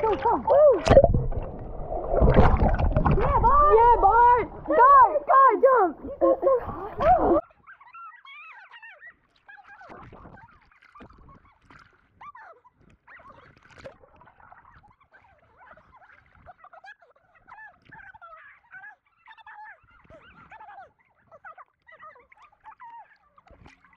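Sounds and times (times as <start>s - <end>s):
water sloshing: 0.0s - 7.4s.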